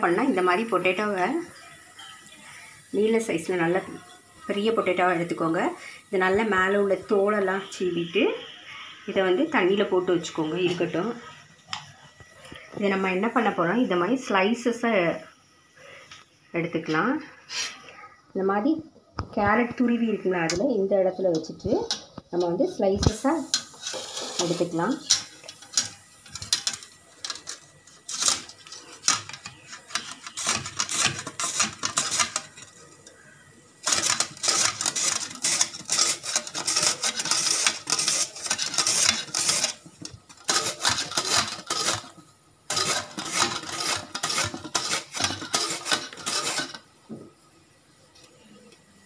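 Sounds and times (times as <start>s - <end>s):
potato rasping on metal grater: 28.1s - 32.6s, 33.9s - 39.8s, 40.4s - 42.1s, 42.7s - 46.8s.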